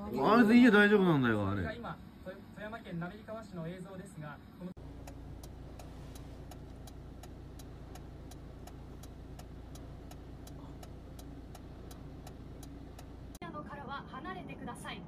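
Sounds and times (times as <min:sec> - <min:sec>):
car engine idling: 0:04.8 - 0:13.4
indicator relay ticking: 0:04.8 - 0:13.4.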